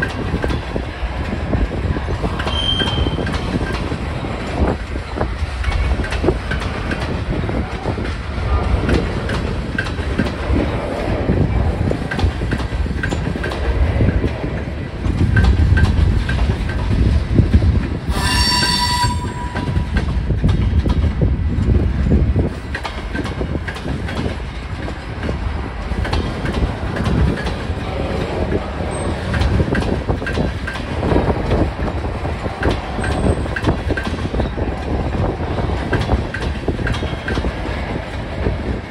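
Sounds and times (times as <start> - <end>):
wheels clicking over rail joints: 0.0 - 18.0, 19.5 - 38.9
freight car wheels rumbling: 0.0 - 18.1, 19.2 - 38.9
wind buffeting microphone: 0.0 - 38.9
high-pitched wheel squeal: 2.5 - 3.2, 18.1 - 19.9.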